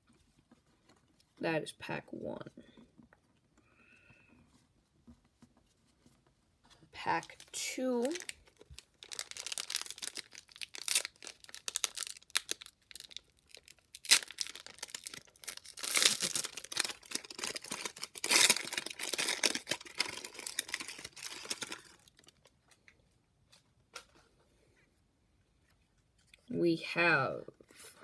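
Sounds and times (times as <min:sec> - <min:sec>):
wrapper tearing and crinkling: 0:07.1 - 0:22.5.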